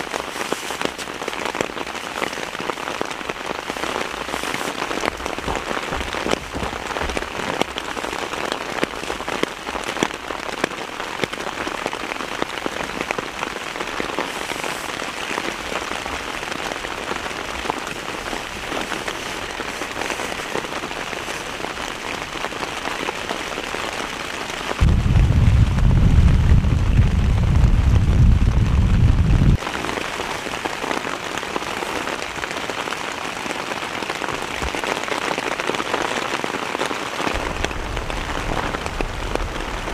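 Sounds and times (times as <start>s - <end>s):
heavy rain falling: 0.0s - 39.9s
loud low rumble: 24.8s - 29.6s, 37.4s - 39.9s.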